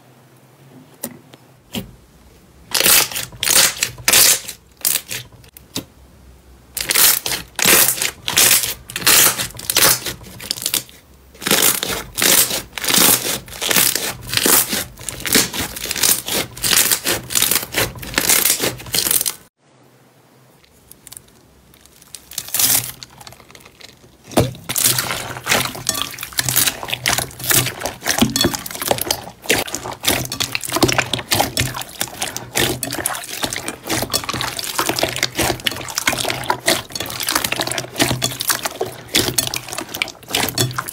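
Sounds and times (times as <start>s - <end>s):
slime squelching: 2.6s - 5.9s, 6.7s - 19.5s, 20.6s - 40.9s
foam beads crackling: 20.7s - 40.9s.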